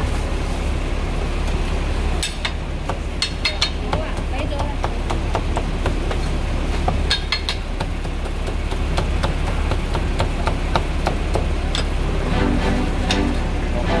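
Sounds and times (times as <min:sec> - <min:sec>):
constant low hum: 0:00.0 - 0:14.0
cleaver chopping on wooden block: 0:02.9 - 0:11.8
voice or music: 0:12.1 - 0:14.0.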